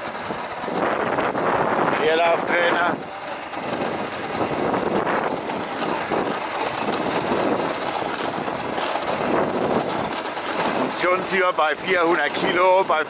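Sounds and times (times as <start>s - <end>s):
quad bike tyres and frame rattling: 0.0s - 13.0s.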